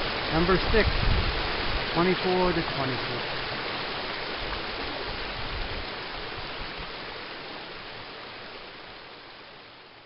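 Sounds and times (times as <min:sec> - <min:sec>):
creek rushing over stones: 0:00.0 - 0:10.0.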